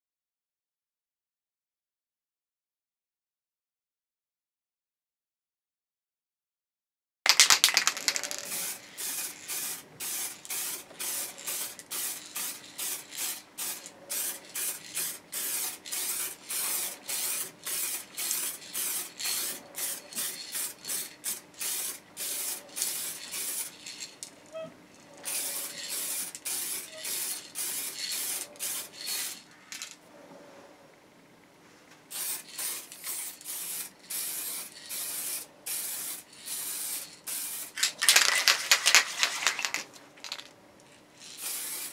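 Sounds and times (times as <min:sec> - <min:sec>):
spray can hissing bursts: 0:07.3 - 0:24.2, 0:25.3 - 0:29.9, 0:32.1 - 0:40.5, 0:41.3 - 0:41.9.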